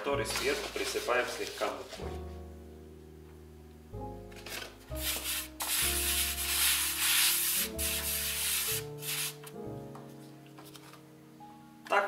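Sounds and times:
soft background music: 0.0 - 12.0
hand rubbing flour on tray: 5.0 - 9.3.

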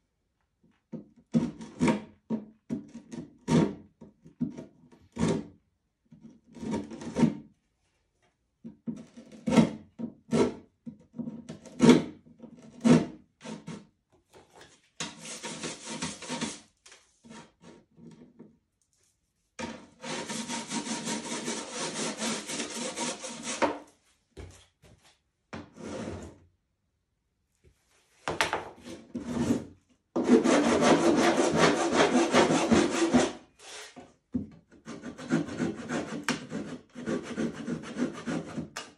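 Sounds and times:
sanding block scraping canvas: 15.1 - 16.6, 20.0 - 23.7, 30.2 - 34.0.

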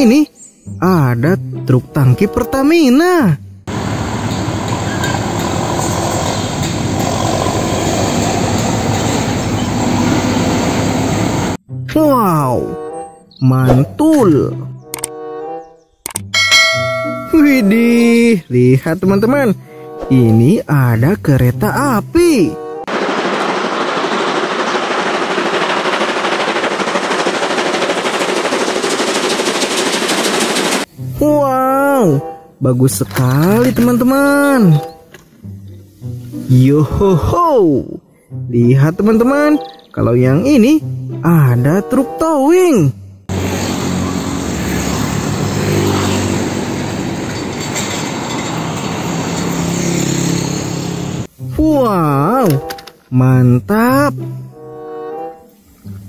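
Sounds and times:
road and traffic noise: 3.7 - 11.6, 43.3 - 51.4
truck diesel engine running: 22.9 - 30.9, 43.3 - 51.3
steam locomotive chuffing: 22.9 - 31.1, 43.3 - 51.5.

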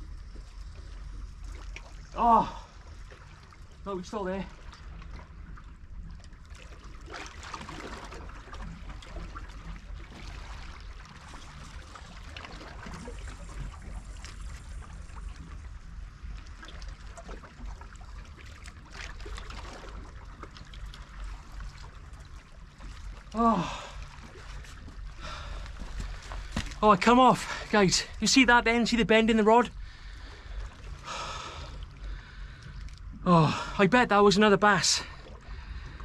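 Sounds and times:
water lapping among rocks: 0.0 - 28.4
low steady rumble: 0.0 - 36.0.

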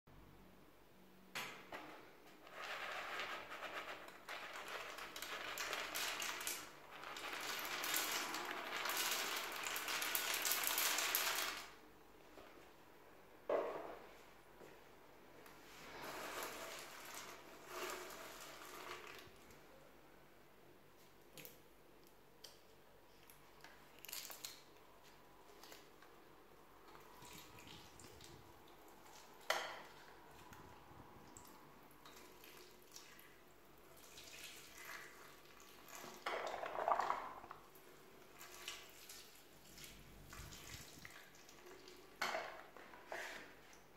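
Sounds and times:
popcorn dropping into toilet water: 2.6 - 11.8, 16.3 - 19.5, 34.6 - 37.8.

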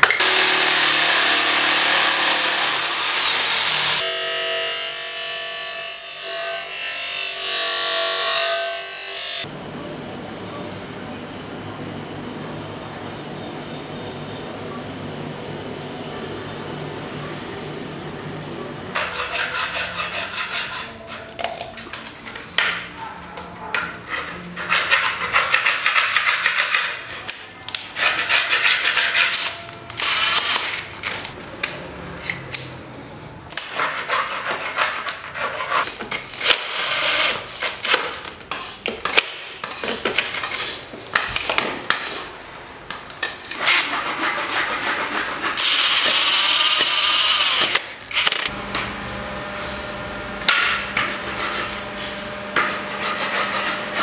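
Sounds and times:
rubbing and scraping by hand: 43.6 - 45.6, 51.0 - 54.0.

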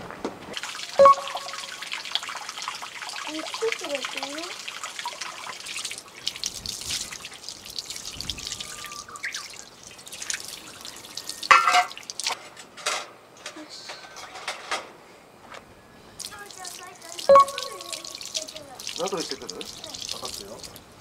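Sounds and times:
hose water splashing in sink: 0.6 - 12.4, 16.2 - 20.8
dishes knocking: 11.5 - 11.9.

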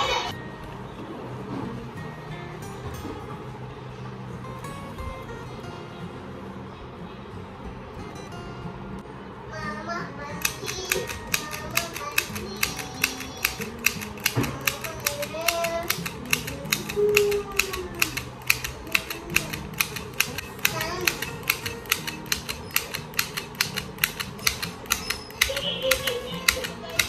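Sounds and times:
mini sewing machine clicking: 10.4 - 27.0.

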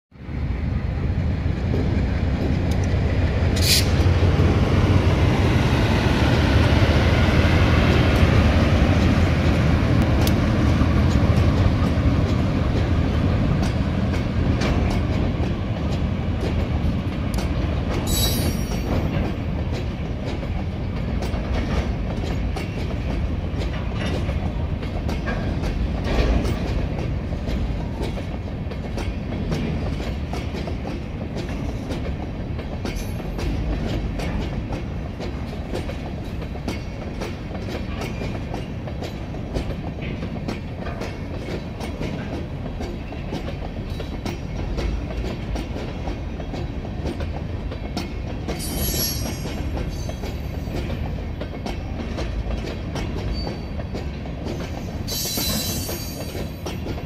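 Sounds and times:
locomotive rumble: 0.2 - 57.0
wheels clicking over rail joints: 7.8 - 57.0
high wheel squeals: 48.6 - 50.1, 55.1 - 56.3.

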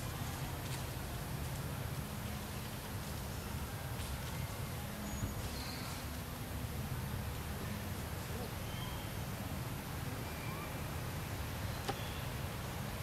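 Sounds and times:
faint high chirps: 10.2 - 10.9.

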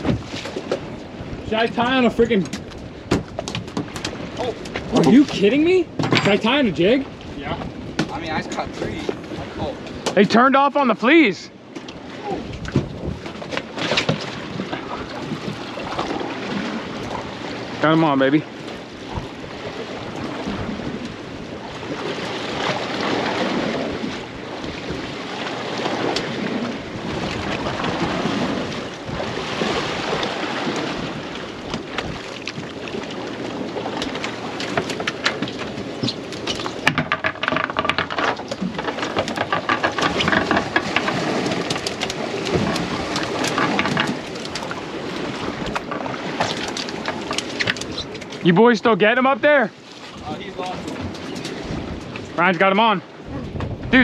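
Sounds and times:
water sloshing against boat hull: 0.0 - 54.0
wind rushing over microphone: 12.1 - 13.4, 18.9 - 32.8, 50.1 - 52.4, 53.1 - 54.0.

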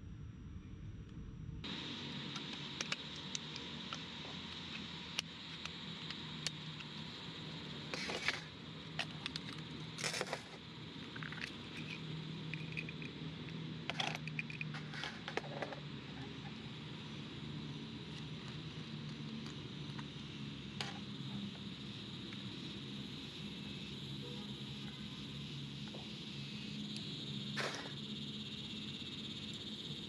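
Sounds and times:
metal parts scraping: 8.0 - 8.5, 9.4 - 12.0, 13.9 - 15.8
metal parts clicking and tapping: 9.0 - 15.8.

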